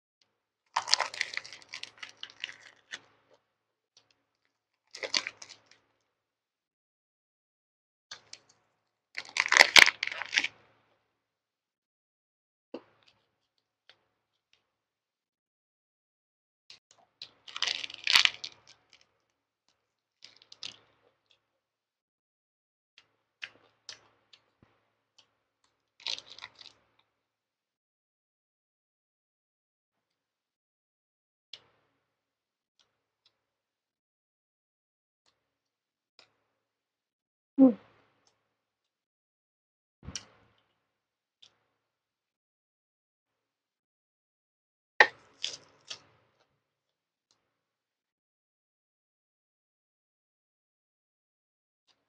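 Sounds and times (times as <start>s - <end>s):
crisp crunching chewing: 0.8s - 3.0s, 5.0s - 5.6s, 9.2s - 10.5s, 17.5s - 18.5s, 26.0s - 26.7s
crunchy wet chewing: 0.8s - 3.0s, 5.0s - 5.6s.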